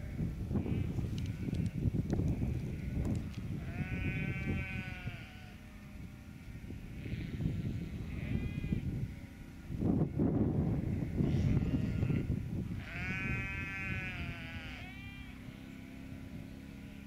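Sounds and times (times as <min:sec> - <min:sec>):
low rumbling background noise: 0:00.0 - 0:17.0
sheep bleating: 0:02.4 - 0:09.3, 0:10.9 - 0:16.1.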